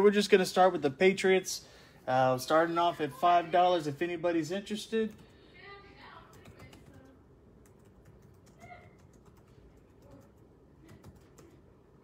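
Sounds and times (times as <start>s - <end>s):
computer keyboard typing: 5.1s - 5.3s, 6.3s - 11.6s.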